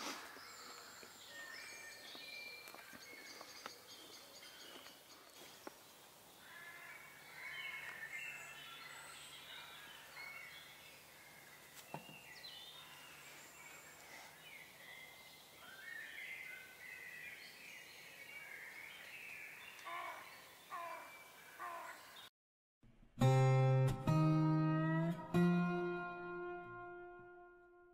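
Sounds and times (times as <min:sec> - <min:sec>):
songbirds chirping and warbling: 0:00.0 - 0:22.3.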